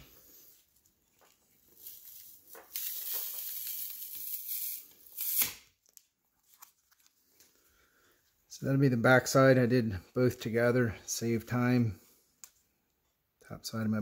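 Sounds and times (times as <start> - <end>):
short rip: 4.6 - 5.7.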